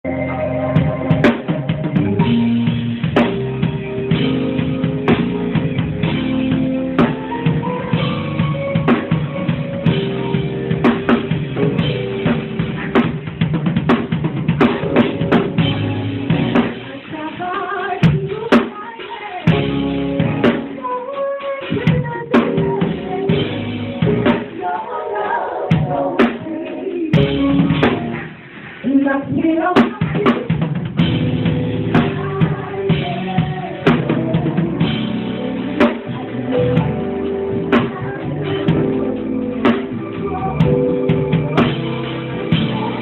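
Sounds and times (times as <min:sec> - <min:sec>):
held keyboard notes: 0:00.0 - 0:17.0, 0:30.9 - 0:43.0
live band playing: 0:00.0 - 0:43.0
drum kit kick and snare hits: 0:00.8 - 0:17.0, 0:27.2 - 0:28.5, 0:29.8 - 0:36.2.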